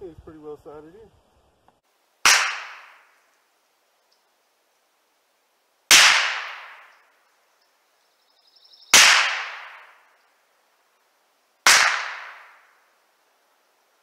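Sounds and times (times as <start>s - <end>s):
rifle shots: 2.2s - 3.1s, 5.9s - 6.9s, 8.9s - 10.0s, 11.6s - 12.7s.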